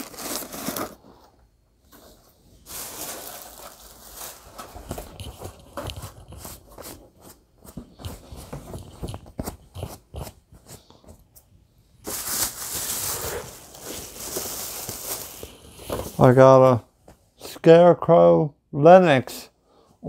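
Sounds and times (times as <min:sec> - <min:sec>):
plastic bags rustling: 0:00.0 - 0:01.3, 0:01.9 - 0:06.7, 0:12.0 - 0:16.6.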